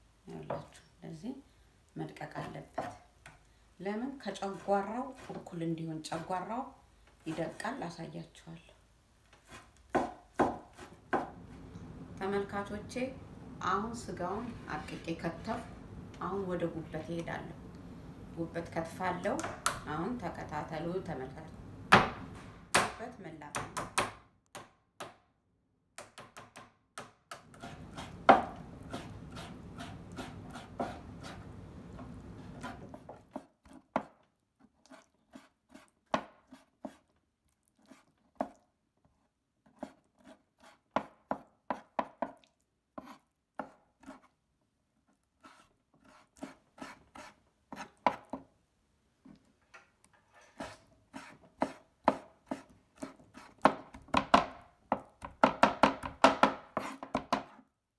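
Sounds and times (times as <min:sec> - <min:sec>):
knife chopping on cutting board: 0:09.5 - 0:11.4, 0:26.0 - 0:31.4, 0:39.8 - 0:42.4, 0:50.6 - 0:57.6.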